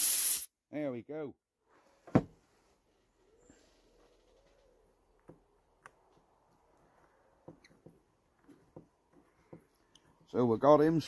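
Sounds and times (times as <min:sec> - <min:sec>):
faint handling sounds: 0:01.7 - 0:10.4.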